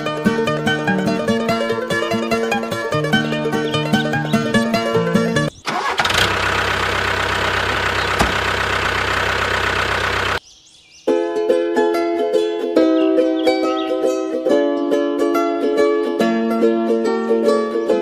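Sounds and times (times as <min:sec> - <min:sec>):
plucked-string background music: 0:00.0 - 0:05.5, 0:11.1 - 0:18.0
motor running: 0:06.0 - 0:10.4.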